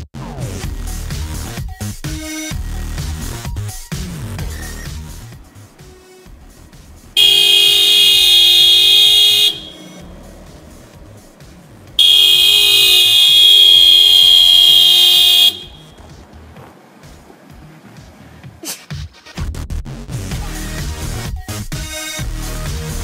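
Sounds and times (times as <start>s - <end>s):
car horn blasts: 7.2s - 10.1s, 12.0s - 16.0s.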